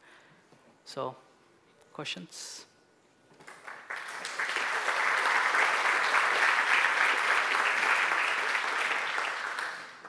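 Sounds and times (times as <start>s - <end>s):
audience applauding: 3.4s - 10.0s.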